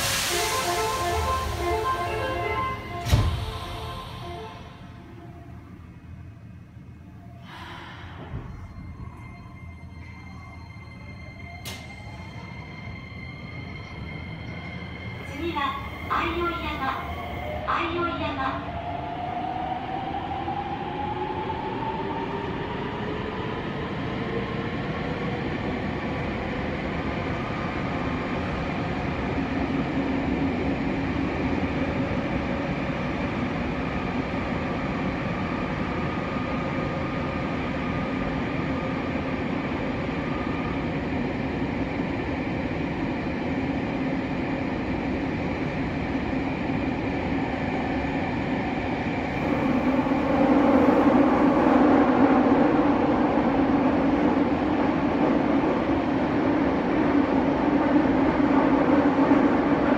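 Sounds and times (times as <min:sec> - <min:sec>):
train running noise: 0:00.0 - 0:06.9, 0:07.5 - 0:18.6.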